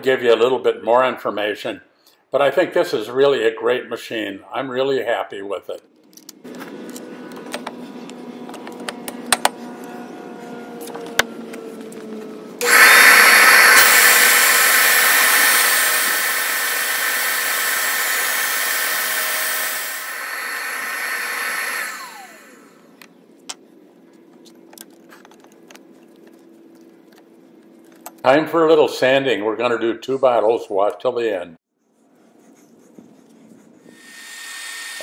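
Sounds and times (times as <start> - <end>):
angle grinder cutting glass: 12.6 - 22.8, 33.9 - 35.0
grinder disc spinning down: 12.6 - 22.9.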